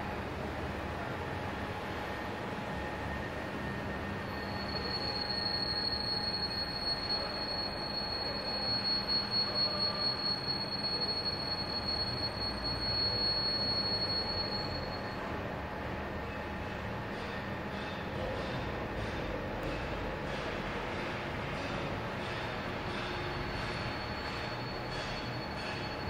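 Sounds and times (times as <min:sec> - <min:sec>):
high-pitched whistle: 0:04.2 - 0:15.3.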